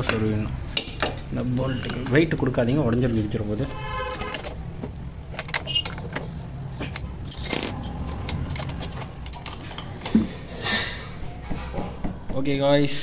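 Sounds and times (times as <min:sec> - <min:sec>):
steady low hum: 0:06.3 - 0:11.3.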